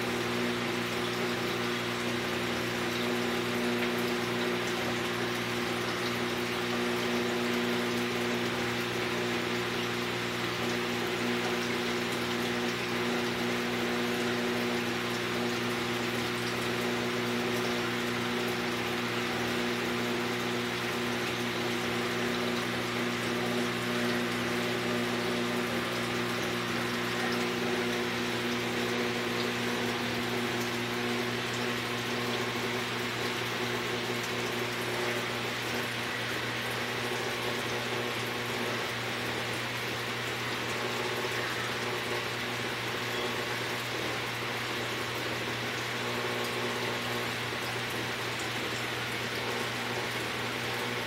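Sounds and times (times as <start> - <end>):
aquarium pump hum: 0.0 - 51.0
circulating water rushing: 0.0 - 51.0.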